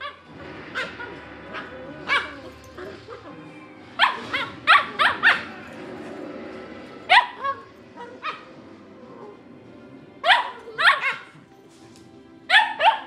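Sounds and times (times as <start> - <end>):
dogs yipping in play: 0.0 - 5.6, 7.0 - 8.6, 12.5 - 13.0.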